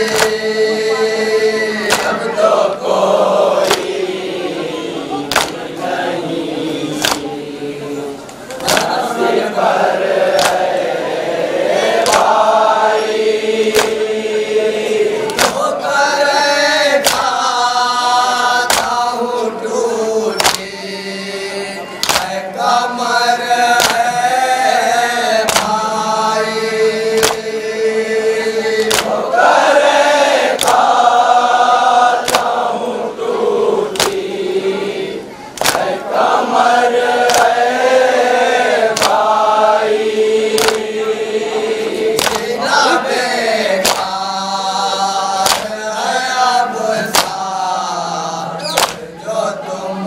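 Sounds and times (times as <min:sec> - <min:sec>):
chest-beating slaps: 0:00.0 - 0:00.5, 0:01.8 - 0:02.3, 0:03.6 - 0:04.0, 0:05.2 - 0:05.7, 0:07.0 - 0:07.3, 0:08.5 - 0:09.0, 0:10.3 - 0:10.7, 0:12.0 - 0:12.4, 0:13.7 - 0:14.1, 0:15.2 - 0:15.7, 0:17.0 - 0:17.3, 0:18.6 - 0:19.0, 0:20.4 - 0:20.7, 0:22.0 - 0:22.4, 0:23.8 - 0:24.2, 0:25.4 - 0:25.8, 0:27.1 - 0:27.5, 0:28.8 - 0:29.2, 0:30.5 - 0:30.9, 0:32.2 - 0:32.6, 0:33.9 - 0:34.3, 0:35.5 - 0:36.0, 0:37.2 - 0:37.6, 0:38.9 - 0:39.4, 0:40.5 - 0:41.0, 0:42.0 - 0:42.6, 0:43.8 - 0:44.2, 0:45.4 - 0:45.8, 0:47.0 - 0:47.4, 0:48.7 - 0:49.1
man singing into a microphone: 0:00.0 - 0:02.3, 0:42.6 - 0:50.0
group of men chanting: 0:00.0 - 0:50.0.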